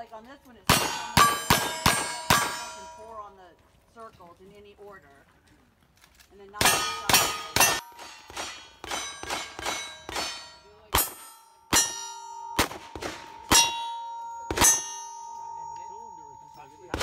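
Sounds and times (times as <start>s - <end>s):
steel plates ringing: 0.7s - 3.3s, 6.6s - 17.0s
gunshots: 6.6s - 15.1s, 16.8s - 17.0s.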